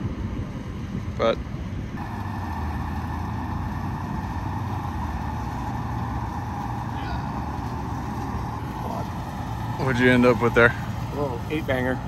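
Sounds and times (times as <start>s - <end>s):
faint constant whine: 0.0s - 12.0s
golf cart driving: 0.0s - 12.0s.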